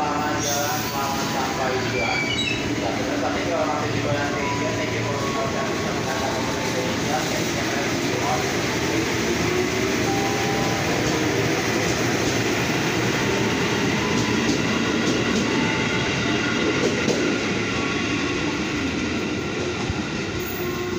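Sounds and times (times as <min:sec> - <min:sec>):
train wheels rumbling on rails: 0:00.0 - 0:20.9.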